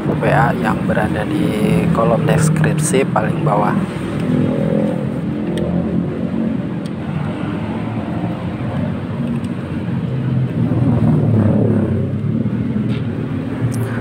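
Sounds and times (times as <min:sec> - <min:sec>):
motorbike passing: 0:00.0 - 0:14.0
road traffic rumble: 0:00.0 - 0:14.0.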